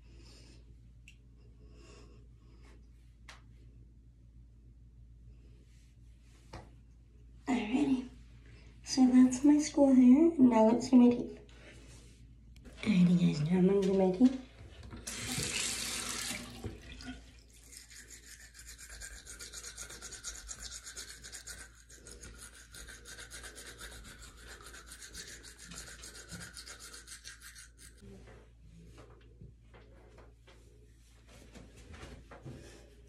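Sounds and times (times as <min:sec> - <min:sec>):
teeth brushing: 0:17.5 - 0:28.0.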